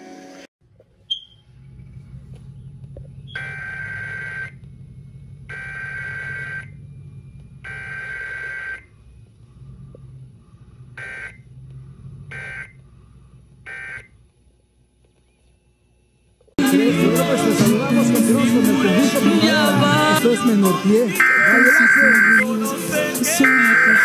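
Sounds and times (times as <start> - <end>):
low steady hum: 0.6 - 16.6
data bursts through speaker: 19.5 - 22.6, 23.2 - 24.0.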